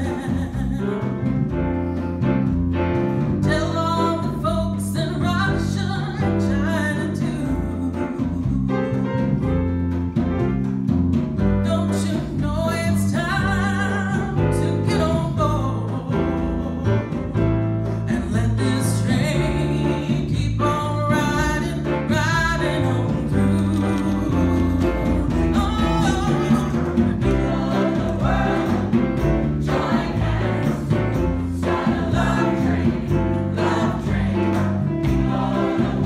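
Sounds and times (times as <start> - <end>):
woman singing into a microphone: 0.0 - 1.1, 3.4 - 9.0, 11.7 - 17.4, 18.1 - 27.9
instrumental backing with bass line: 0.0 - 36.0
church choir singing: 26.6 - 36.0.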